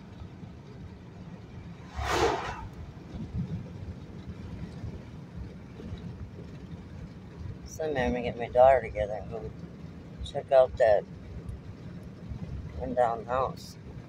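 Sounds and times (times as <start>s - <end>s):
road and engine rumble: 0.0s - 14.0s
car passing whoosh: 1.7s - 3.2s.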